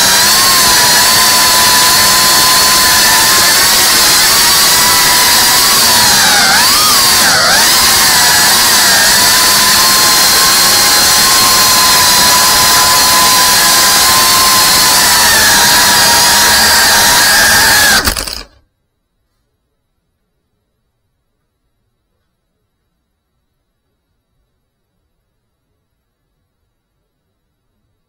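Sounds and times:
drone motors whining: 0:00.0 - 0:18.6.

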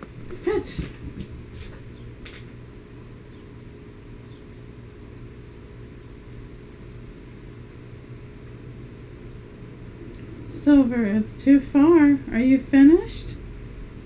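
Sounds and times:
low hum with faint hiss: 0:00.0 - 0:14.0.

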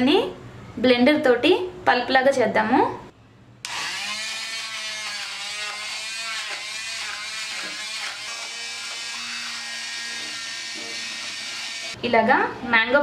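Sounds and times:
immersion blender running: 0:03.6 - 0:12.0.

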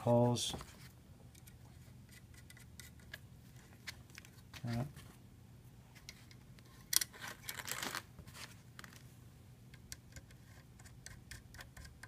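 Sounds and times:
rustling and scraping of parts: 0:00.0 - 0:05.2, 0:05.9 - 0:09.2.

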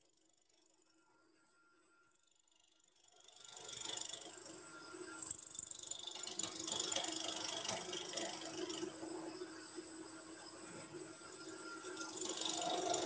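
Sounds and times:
lathe humming: 0:03.4 - 0:13.0
tool cutting wood on lathe: 0:05.7 - 0:08.9, 0:11.8 - 0:13.0.

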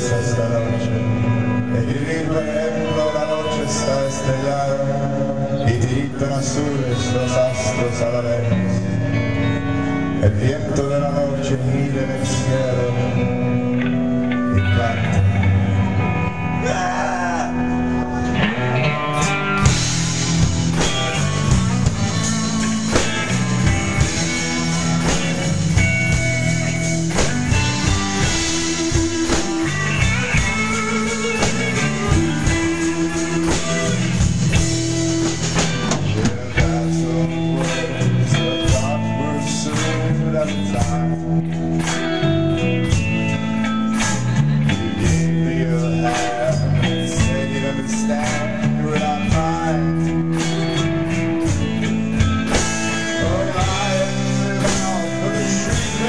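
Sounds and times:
rock band playing live: 0:00.0 - 0:56.0
drum hits: 0:19.6 - 0:36.8.

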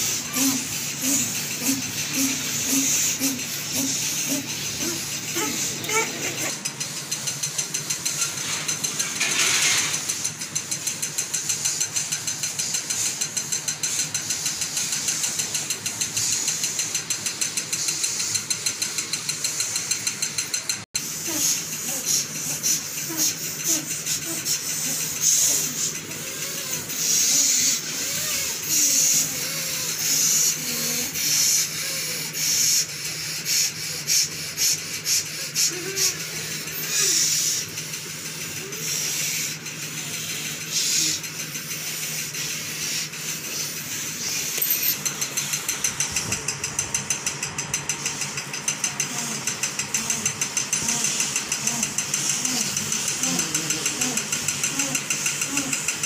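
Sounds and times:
forceful nasal breathing: 0:00.0 - 0:07.2.

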